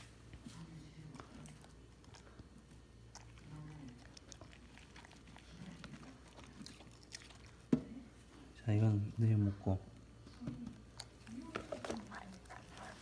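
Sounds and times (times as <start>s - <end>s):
dog chewing and licking: 1.0s - 8.0s, 10.8s - 13.0s.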